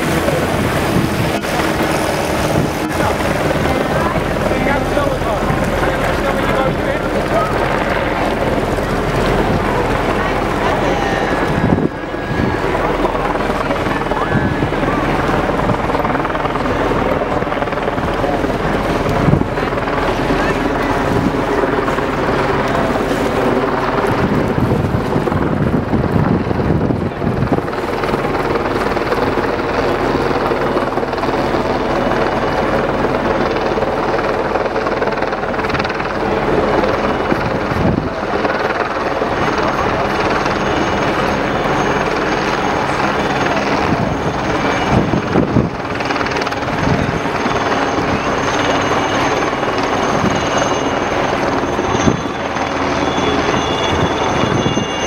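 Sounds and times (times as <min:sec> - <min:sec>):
engine drone: 0:00.0 - 0:55.0.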